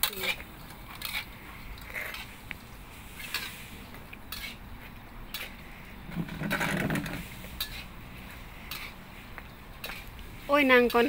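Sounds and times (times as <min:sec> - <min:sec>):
metal spatula scraping a wok: 0:00.0 - 0:01.3, 0:03.0 - 0:04.7, 0:05.3 - 0:09.0
rice frying in oil: 0:00.0 - 0:04.7, 0:07.2 - 0:11.0.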